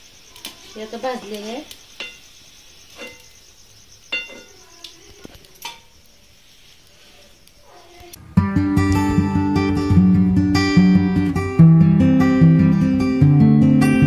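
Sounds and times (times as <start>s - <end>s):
steel spoon tapping metal: 2.0s - 2.3s, 3.0s - 3.3s, 4.1s - 4.6s.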